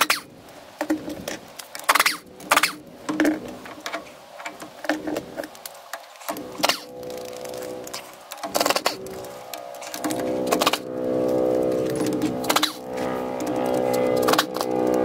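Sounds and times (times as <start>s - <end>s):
impact wrench whine: 6.2s - 15.0s.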